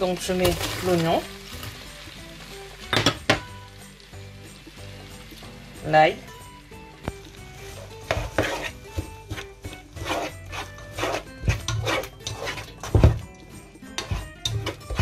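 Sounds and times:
spoon stirring and scraping pot: 7.4 - 15.0.

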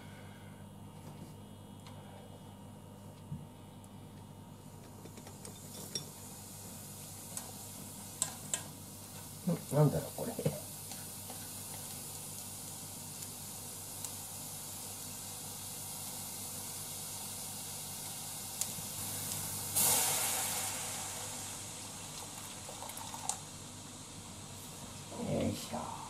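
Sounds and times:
onions sizzling in a pan: 5.6 - 25.8
loud hiss of steam: 6.2 - 22.8
water pouring into pan: 17.4 - 23.6.

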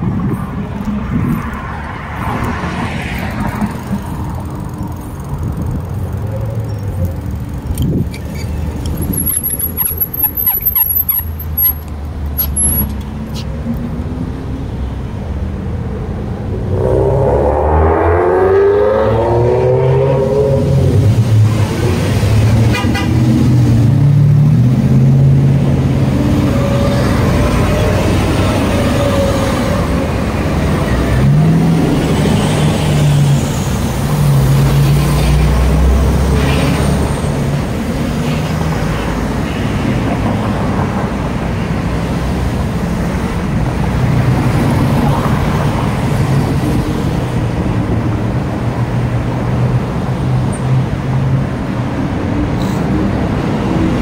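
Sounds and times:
cars driving past: 0.0 - 54.0.

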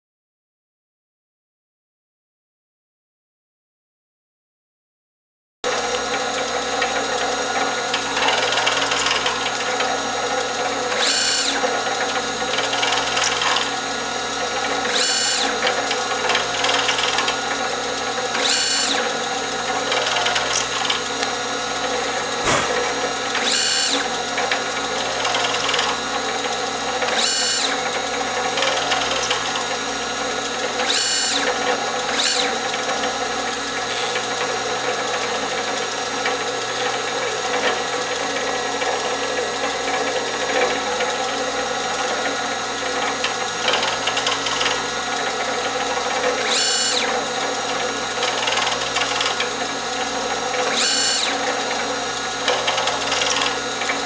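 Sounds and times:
drill press running: 5.7 - 54.0
short high-pitched drilling bursts: 11.0 - 11.6, 14.9 - 15.6, 18.4 - 19.0, 22.4 - 24.0, 27.2 - 27.8, 30.8 - 31.5, 32.2 - 32.5, 46.4 - 47.1, 50.7 - 51.4.

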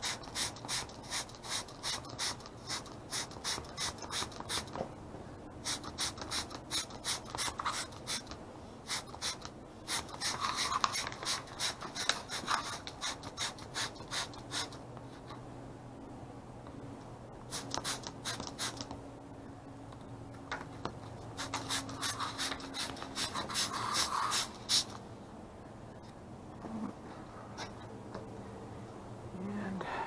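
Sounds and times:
spray bottle squirting: 0.0 - 4.8, 5.6 - 14.8, 17.5 - 18.9, 21.4 - 25.0.

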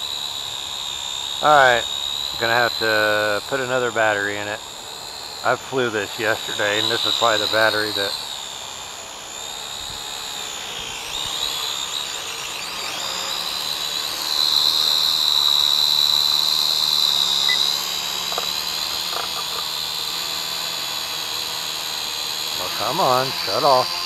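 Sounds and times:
toy drone propellers whining: 0.0 - 24.0.

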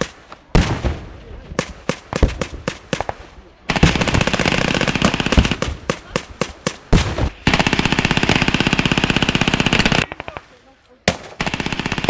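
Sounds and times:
single gunshots: 0.0 - 4.4, 5.3 - 7.6
machine gun bursts: 7.4 - 10.3, 11.4 - 12.0.

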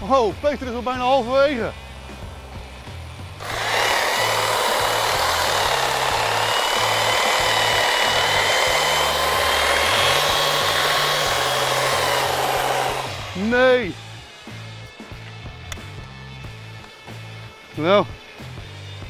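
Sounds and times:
electric hedge trimmer whining: 3.4 - 14.6.

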